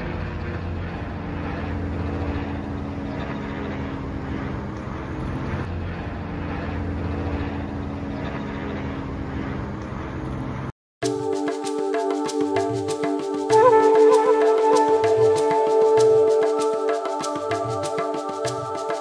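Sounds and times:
low engine drone: 0.0 - 19.0
steady hiss: 11.0 - 19.0.

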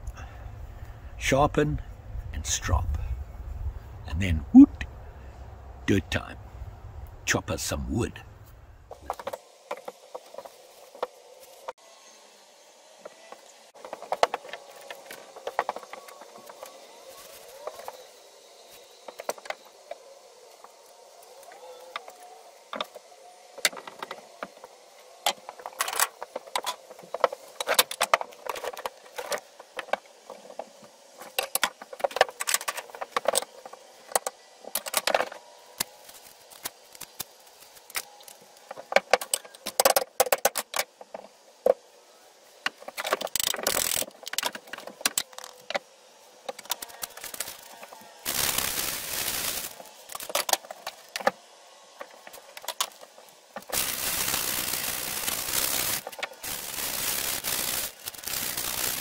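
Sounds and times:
tools and wood clattering: 13.8 - 18.0, 22.7 - 35.4, 36.6 - 41.8, 42.6 - 48.0.

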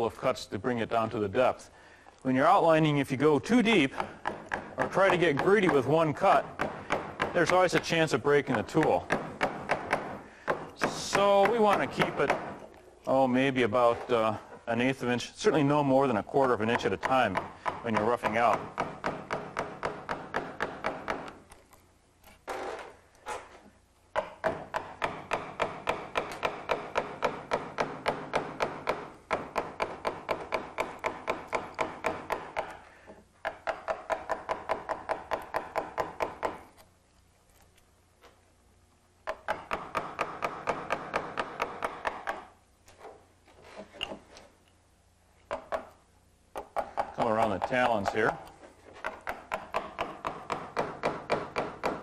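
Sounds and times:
mallet tapping a gouge into wood: 3.8 - 12.7, 16.4 - 21.4, 24.1 - 32.8, 33.4 - 36.8, 39.2 - 42.6, 45.5 - 52.0.

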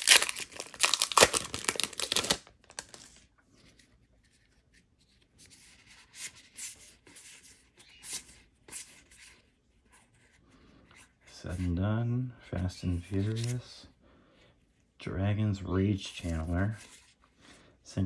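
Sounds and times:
foil wrapper crinkling and tearing: 0.0 - 3.2
cards rustling: 0.0 - 9.1, 13.0 - 13.8.

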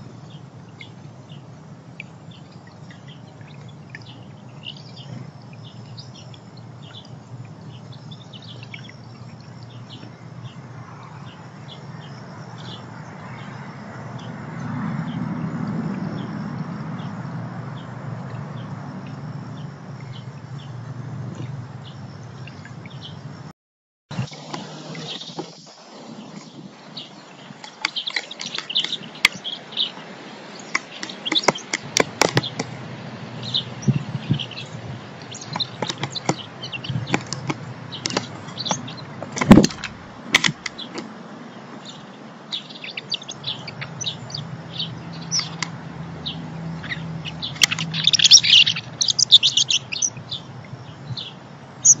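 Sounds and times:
small birds chirping: 0.0 - 23.4, 24.1 - 52.0
sharp knocks: 30.8 - 32.8, 35.5 - 41.1.

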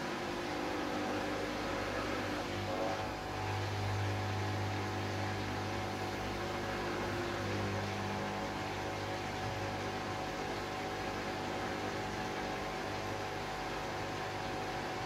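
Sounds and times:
washing machine humming: 0.0 - 15.0.

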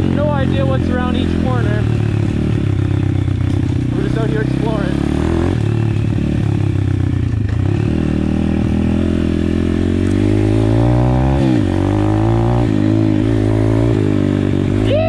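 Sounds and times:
pit bike engine revving: 0.0 - 15.0.

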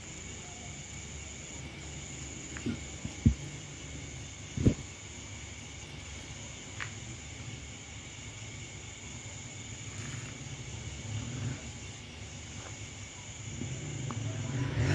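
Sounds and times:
night insects chirring: 0.0 - 14.9
low rumble: 13.4 - 14.9.

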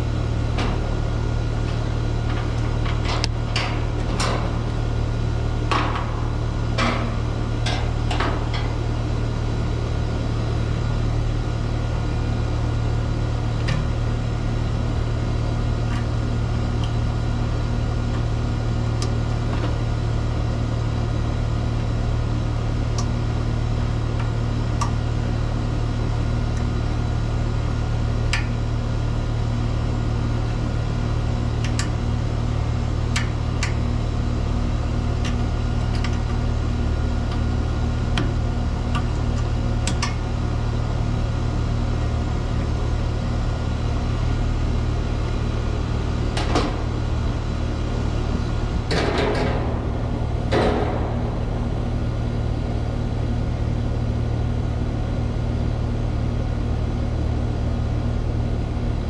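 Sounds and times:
air conditioner compressor hum: 0.0 - 59.0
light clicks from wiring: 31.6 - 32.0, 33.1 - 33.8, 38.9 - 40.2.

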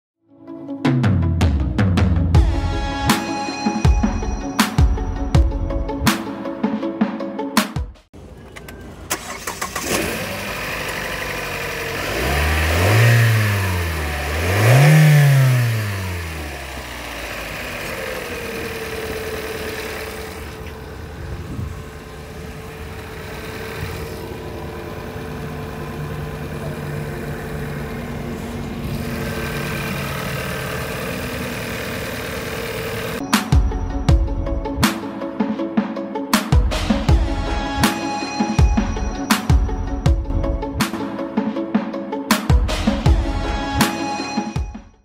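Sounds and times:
car engine starting and revving: 8.2 - 33.2.

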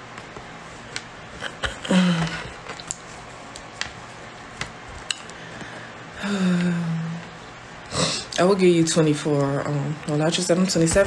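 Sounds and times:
woman's wordless vocal sound: 6.2 - 7.4.

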